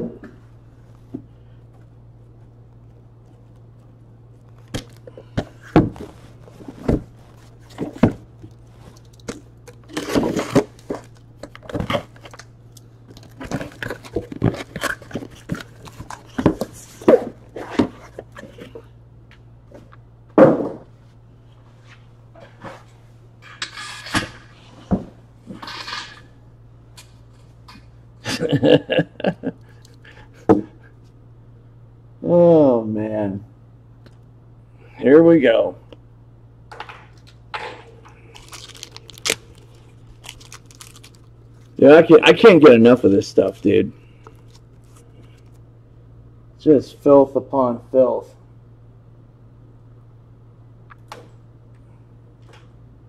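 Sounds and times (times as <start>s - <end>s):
cardboard and wrap rustling: 3.3s - 18.8s, 38.2s - 45.6s.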